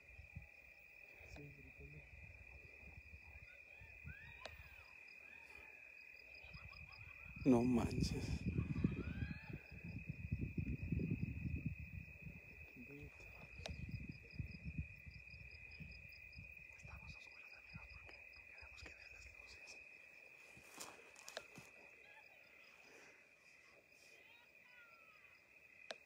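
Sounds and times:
insects trilling: 0:00.0 - 0:26.0
faint clicks: 0:04.2 - 0:04.8, 0:20.9 - 0:21.8.

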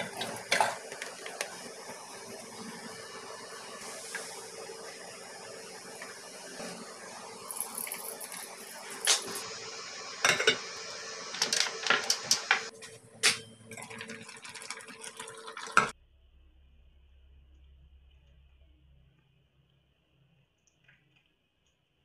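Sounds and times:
faint low hum: 0:16.0 - 0:22.0.

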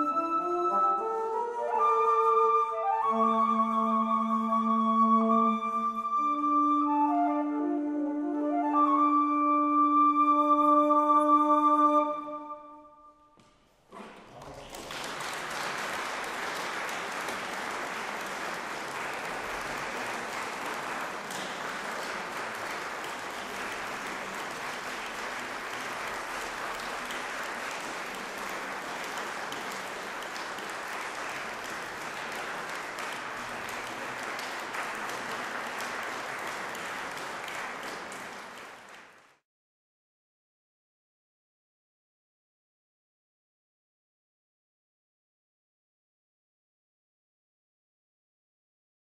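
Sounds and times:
audience applauding: 0:14.0 - 0:39.4.

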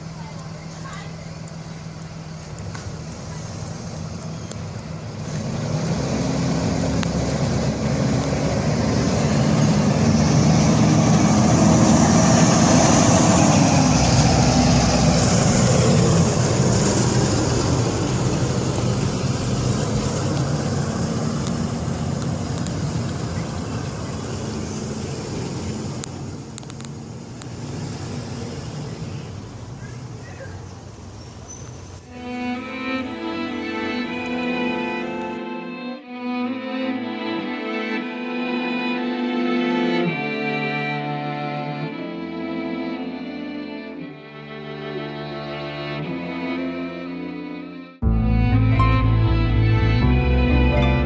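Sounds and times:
bus engine driving past: 0:00.0 - 0:51.0.

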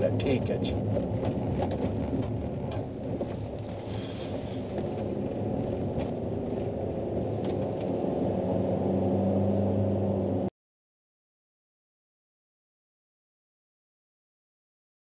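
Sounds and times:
vehicle engine and road hum: 0:00.0 - 0:10.5.

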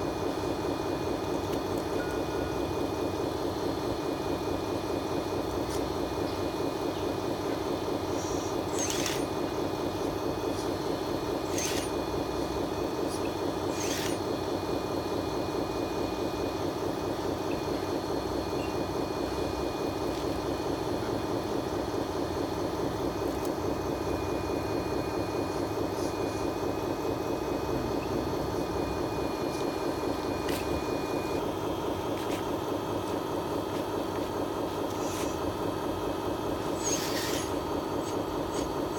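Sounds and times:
toy excavator running: 0:05.4 - 0:14.5, 0:32.2 - 0:35.6, 0:36.5 - 0:38.9.

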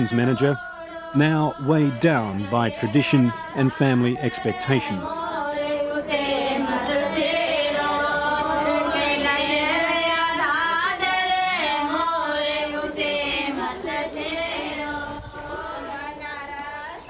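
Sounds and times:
women singing together: 0:00.0 - 0:17.0.

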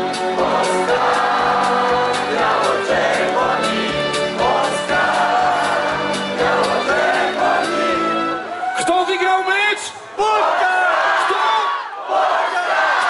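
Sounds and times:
several voices singing: 0:00.0 - 0:08.5, 0:12.0 - 0:13.0.

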